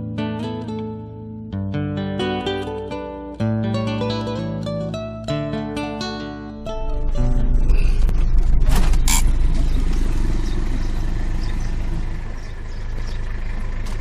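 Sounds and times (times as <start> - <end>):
low rumble of moving car: 6.6 - 14.0.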